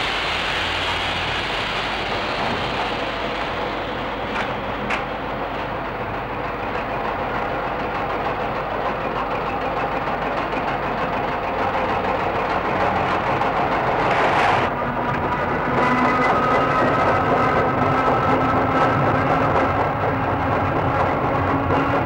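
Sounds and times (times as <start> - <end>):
hiss: 0.0 - 5.4
train noise: 0.0 - 22.0.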